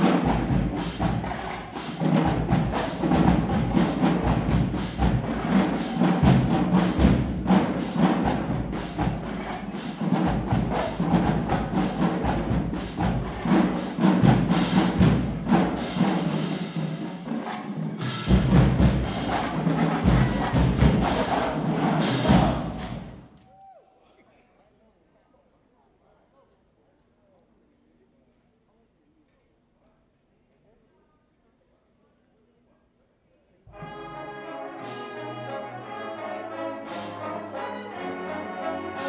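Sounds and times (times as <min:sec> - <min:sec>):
marching band brass: 0:00.0 - 0:23.3, 0:33.7 - 0:39.0
drum line hits: 0:00.0 - 0:23.4.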